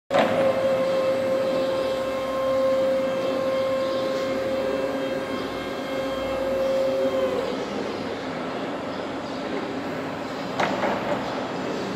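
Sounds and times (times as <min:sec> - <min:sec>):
hydraulic pump motor whining: 0:00.1 - 0:08.4.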